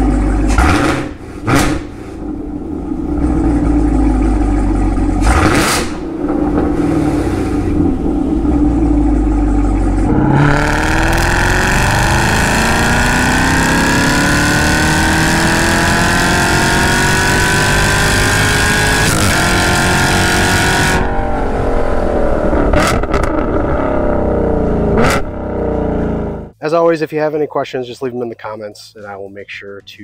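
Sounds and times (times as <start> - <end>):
car engine revving at full throttle: 0.0 - 26.6.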